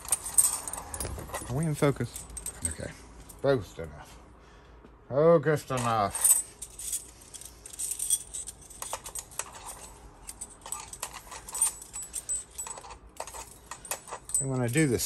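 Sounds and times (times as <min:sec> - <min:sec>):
metal key blanks clinking: 0:00.0 - 0:02.9.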